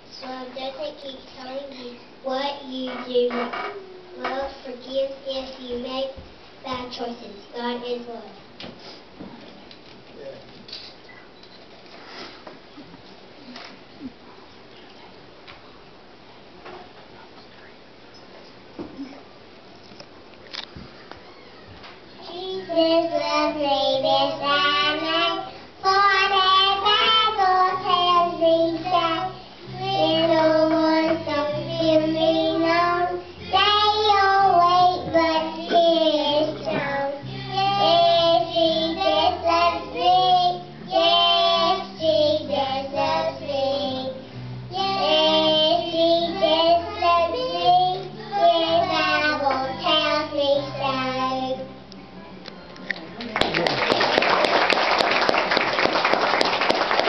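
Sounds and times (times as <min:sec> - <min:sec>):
girls singing: 0:22.2 - 0:51.8.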